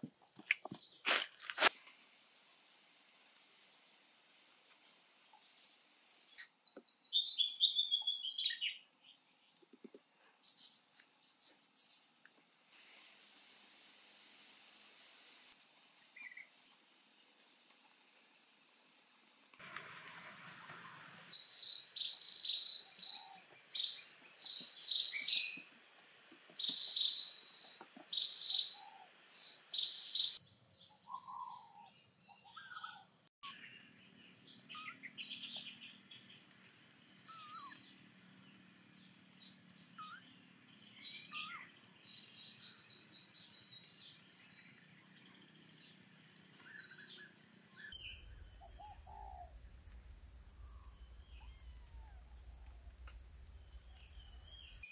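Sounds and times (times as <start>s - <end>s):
high-pitched insect drone: 12.8s - 15.6s
birds chirping and singing: 26.6s - 49.5s.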